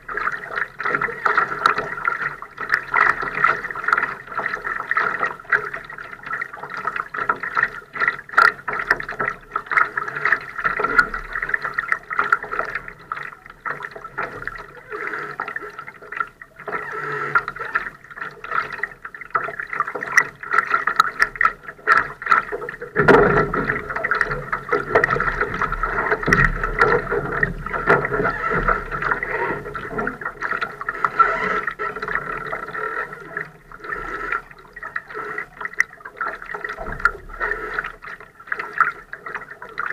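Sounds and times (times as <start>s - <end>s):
small ticks and splashes: 0.0s - 39.9s
water lapping against hull: 0.0s - 39.9s.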